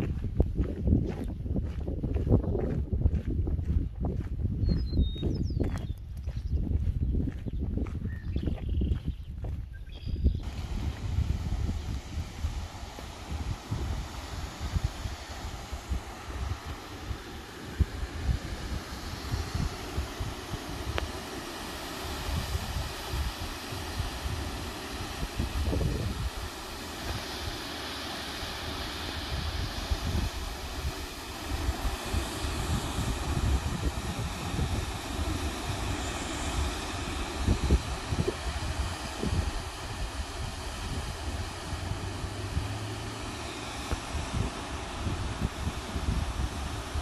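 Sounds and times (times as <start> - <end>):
wind buffeting microphone: 0.0 - 47.0
waterfall rushing hiss: 10.4 - 47.0.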